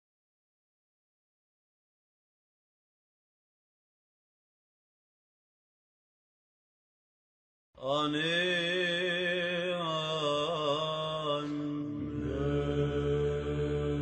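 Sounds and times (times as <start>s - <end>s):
slow chanted singing: 7.8s - 14.0s
held low drone note: 10.3s - 14.0s.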